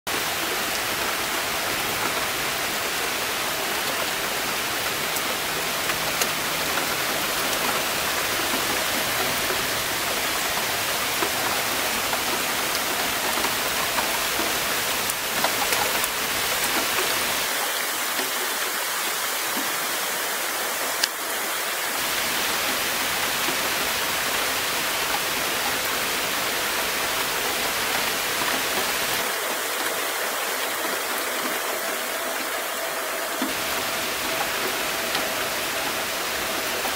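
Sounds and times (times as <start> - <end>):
rain drops ticking: 0.1 - 36.9
rain falling on grass and concrete: 0.1 - 36.9.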